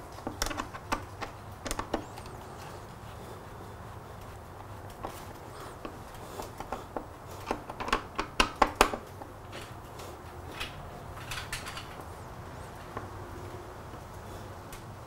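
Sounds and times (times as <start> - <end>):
tools clicking on plastic: 0.0 - 2.7, 4.9 - 9.8.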